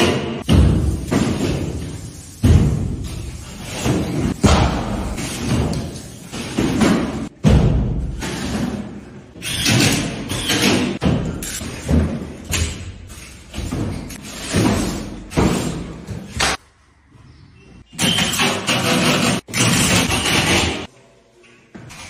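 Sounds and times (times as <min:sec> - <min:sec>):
heavy thumps of drywall work: 0:00.0 - 0:09.0, 0:13.5 - 0:16.6.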